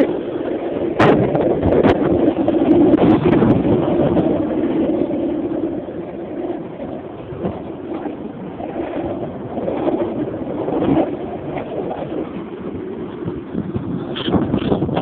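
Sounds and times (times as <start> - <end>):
skateboard wheels rolling on concrete: 0.0 - 15.0.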